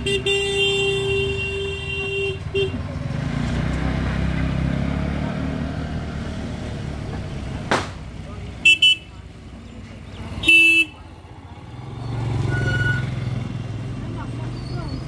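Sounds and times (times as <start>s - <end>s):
vehicle horn: 0.0s - 2.8s, 8.6s - 9.2s, 10.4s - 11.0s
bus engine rumbling: 0.0s - 15.0s.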